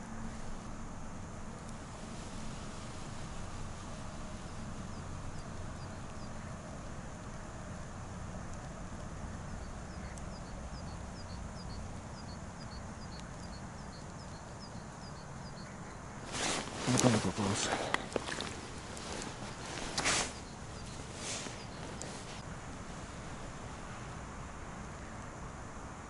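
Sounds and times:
small bird chirping: 4.0 - 6.6, 9.5 - 22.4.

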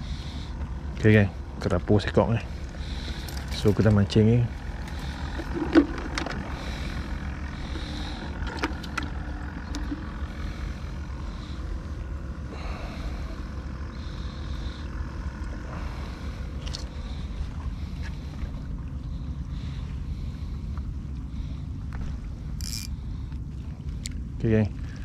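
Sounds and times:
steady low rumble: 0.0 - 25.0
fishing line clicks and rustles: 21.9 - 25.0.

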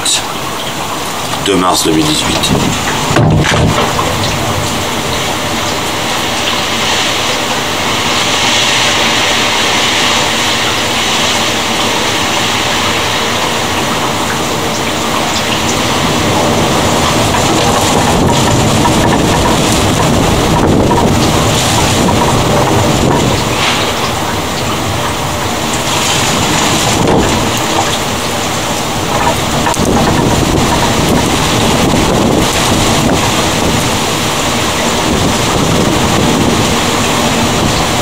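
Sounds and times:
heavy rain pouring: 0.0 - 38.0
deep low rumble: 14.0 - 38.0.

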